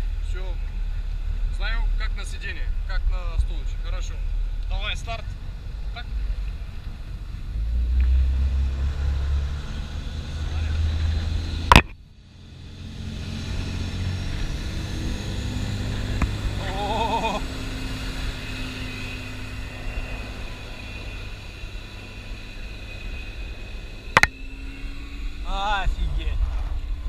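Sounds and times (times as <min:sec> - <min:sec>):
sharp click: 0:11.7 - 0:12.0
motorboat engine running: 0:15.2 - 0:22.7.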